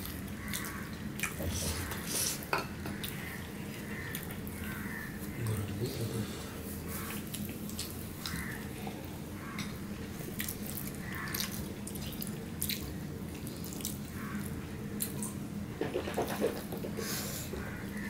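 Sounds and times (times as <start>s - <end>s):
steady low hum: 0.0s - 18.0s
wet chewing and lip smacks: 10.3s - 14.1s.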